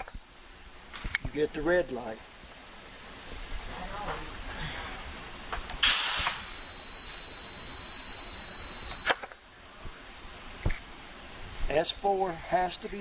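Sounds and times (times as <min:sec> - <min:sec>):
low background noise: 0:00.0 - 0:13.0
short hiss: 0:05.6 - 0:06.4
high-pitched electronic beep: 0:06.2 - 0:09.2.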